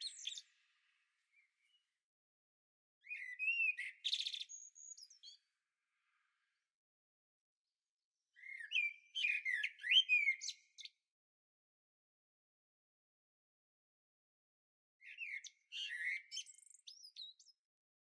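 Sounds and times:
songbird singing: 0.0s - 1.9s, 3.0s - 5.5s, 8.4s - 11.0s, 15.0s - 17.6s.

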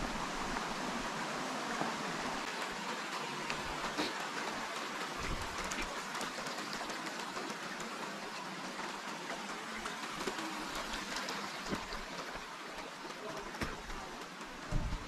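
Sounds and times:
water rushing in channel: 0.0s - 15.0s.

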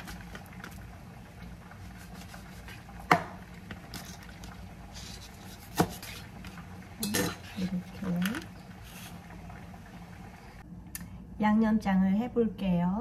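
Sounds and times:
faint steady hum: 0.0s - 13.0s
knife cutting fish: 1.8s - 3.3s, 4.9s - 6.3s.

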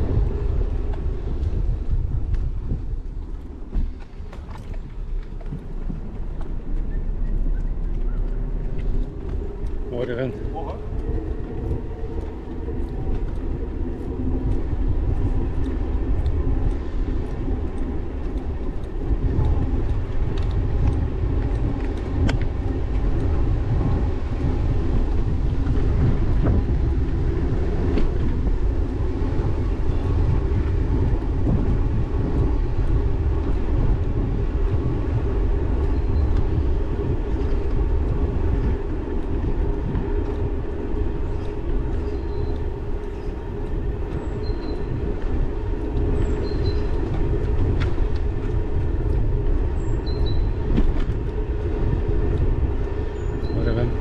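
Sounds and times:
tyres rolling on pavement: 0.0s - 54.0s
wind buffeting microphone: 0.0s - 54.0s.

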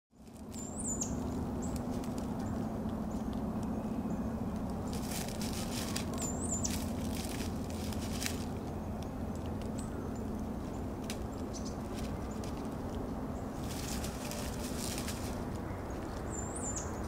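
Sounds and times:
dry leaves rustling: 0.1s - 17.0s
steady low hum: 0.1s - 17.0s
shrew squeaking: 4.7s - 12.8s.

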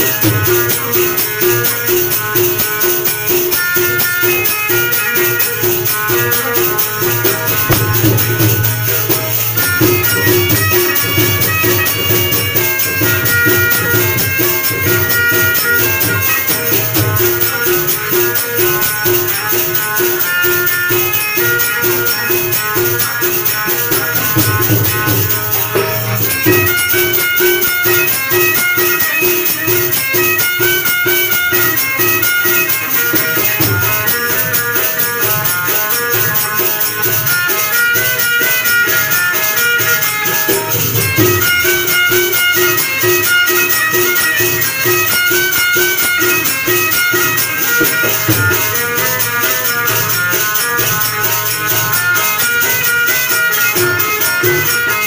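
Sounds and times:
banjo melody: 0.0s - 55.0s
harmonium: 0.0s - 55.0s
jingling hand percussion: 0.0s - 55.0s
tabla: 0.0s - 55.0s.

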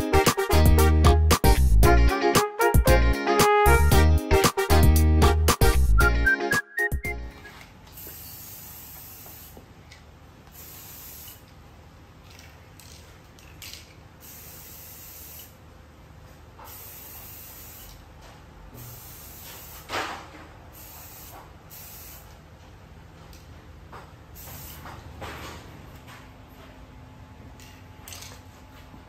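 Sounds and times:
aerosol spray can hissing: 8.0s - 9.6s, 10.6s - 11.4s.

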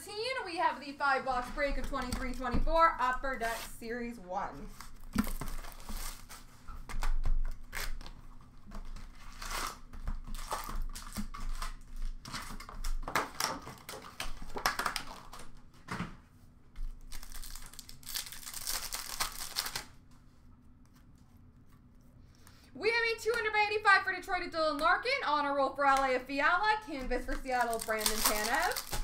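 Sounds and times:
plastic wrappers crinkling and tearing: 4.5s - 15.8s, 16.9s - 20.0s, 26.9s - 29.0s.

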